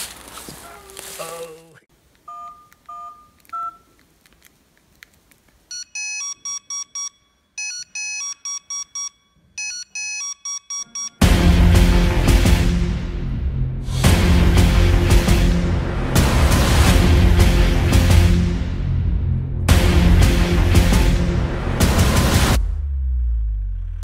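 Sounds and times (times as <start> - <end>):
man's voice: 0.8 - 1.9
touch-tone dialing beeps: 2.3 - 3.9, 5.7 - 11.2
pager alarm beeps: 5.7 - 11.2.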